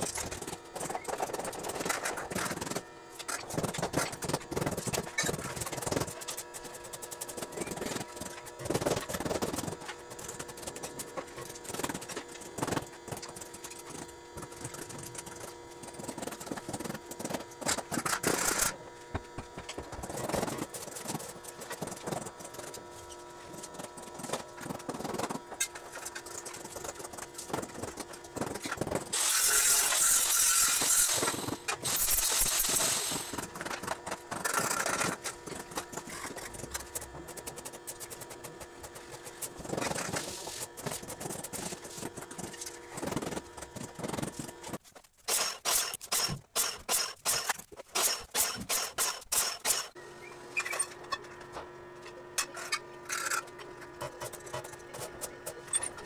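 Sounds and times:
steady electrical hum: 0.0 - 56.0
hissing grinding or welding: 29.1 - 33.4.

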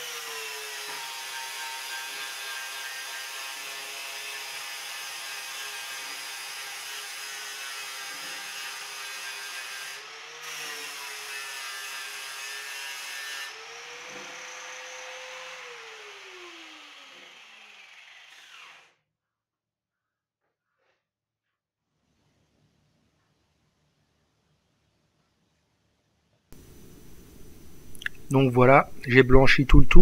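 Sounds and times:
angle grinder grinding metal: 0.0 - 18.9
grinder motor winding down: 13.5 - 18.9.

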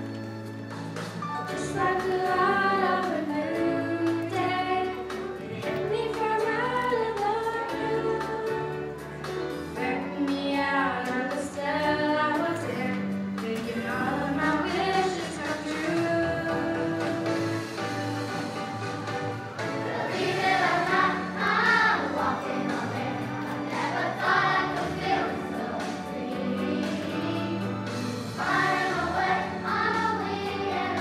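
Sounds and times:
instrumental backing music: 0.0 - 31.0
children's choir singing: 11.3 - 31.0.

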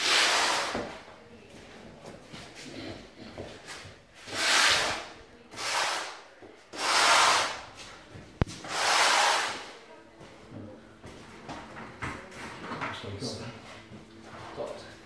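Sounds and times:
rubbing strokes on tile: 0.0 - 1.0, 3.6 - 7.7, 8.6 - 9.7.

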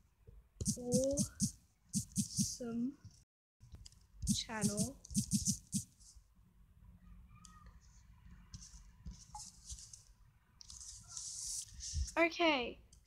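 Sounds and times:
fingers tapping touchscreen: 0.6 - 2.6, 4.2 - 5.9.

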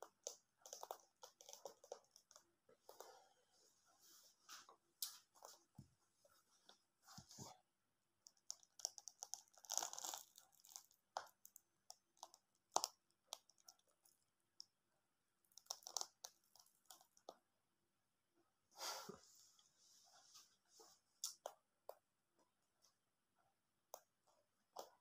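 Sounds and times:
husk crunching and tearing: 8.8 - 11.3.

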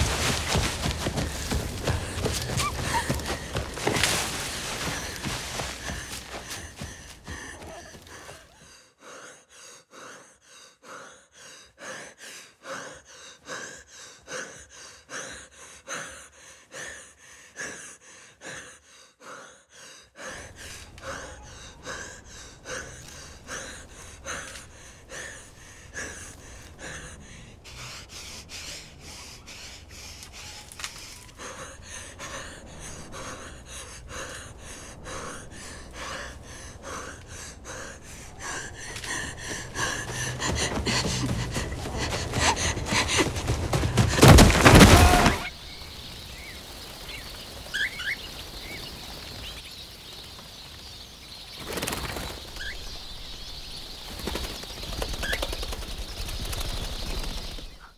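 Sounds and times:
person gasping breaths: 0.0 - 44.6.

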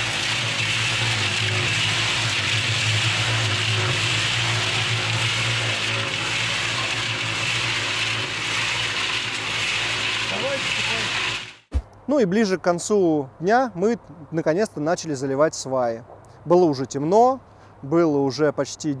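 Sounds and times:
concrete mixer motor hum: 0.0 - 11.7
turning drum noise: 0.0 - 11.9.

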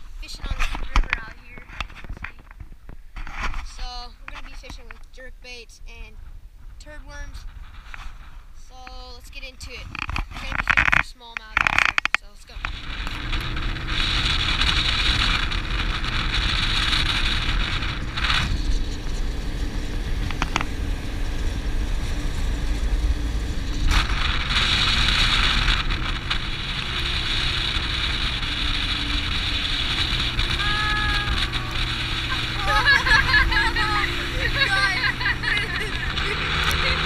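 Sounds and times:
wind rushing over microphone: 0.0 - 37.0
outboard motor running: 11.6 - 37.0
water noise from hull: 12.6 - 37.0.

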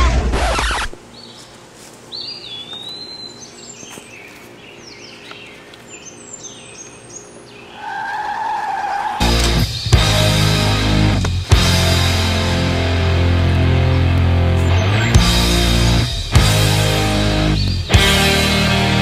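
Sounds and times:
birds chirping: 0.0 - 19.0
car tires squealing: 7.8 - 9.2
loud rock music: 9.2 - 19.0.

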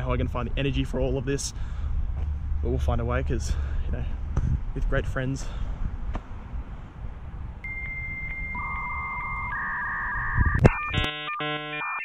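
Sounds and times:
low outdoor rumble: 0.0 - 10.2
dial-up modem handshake tones: 7.7 - 12.0.

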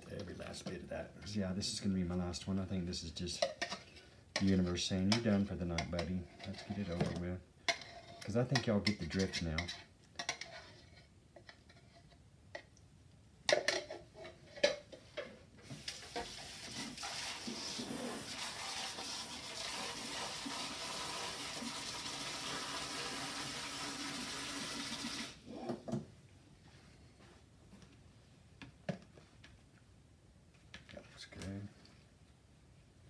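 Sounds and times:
water running from a tap: 15.9 - 25.4.

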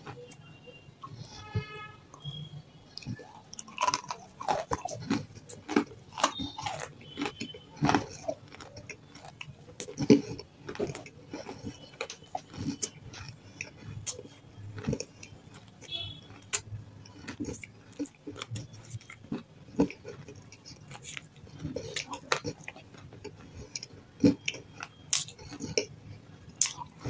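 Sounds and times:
person chewing crunchy food: 0.0 - 27.0.

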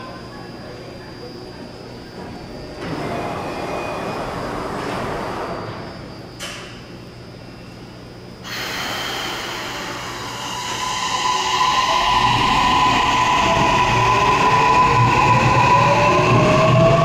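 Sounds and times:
train motor whine rising: 8.5 - 17.0.

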